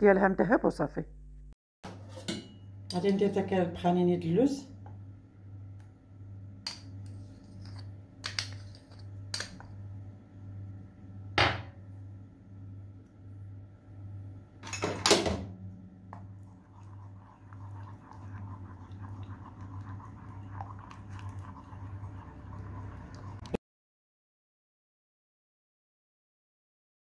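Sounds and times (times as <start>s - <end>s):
low hum: 4.6s - 14.8s, 15.4s - 23.6s.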